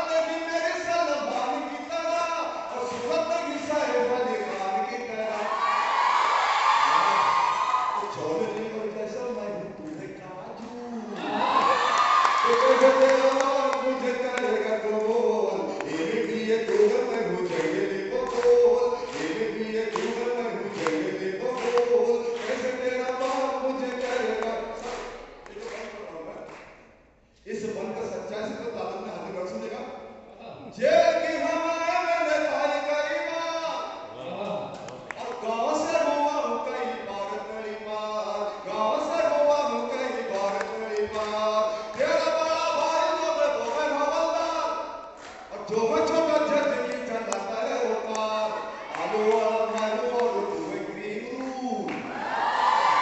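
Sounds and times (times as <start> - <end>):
man chanting into a microphone: 0.0 - 5.5, 12.4 - 26.5, 30.6 - 52.0.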